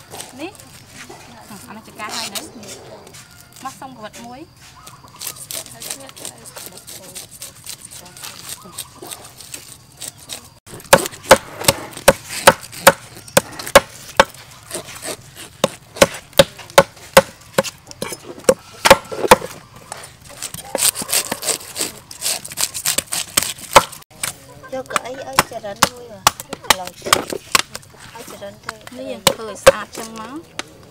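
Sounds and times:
scraper scraping fish scales: 4.6 - 10.6, 11.4 - 16.3, 19.1 - 24.0.

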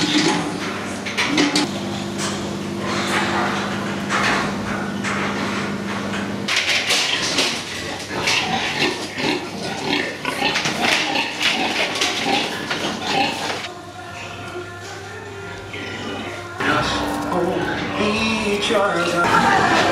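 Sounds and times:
piglets squealing and grunting: 7.0 - 13.7
steady hum: 13.6 - 19.9.

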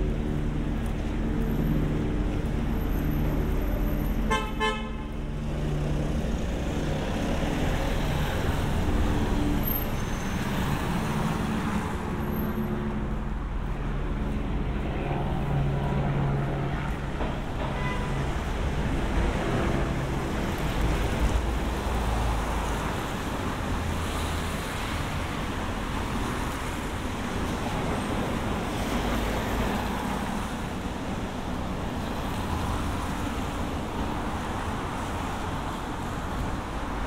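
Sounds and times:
car horn toot: 4.3 - 5.1.

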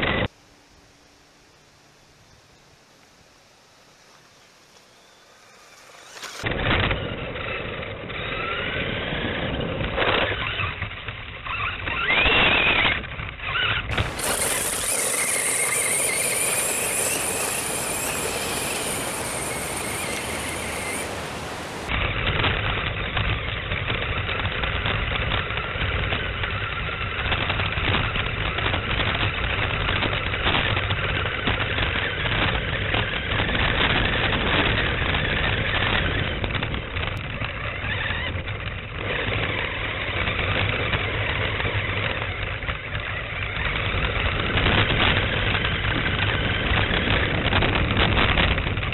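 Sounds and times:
tyres rumbling on pavement: 5.2 - 48.9
toy truck motor whining: 5.4 - 22.0, 25.5 - 47.7.

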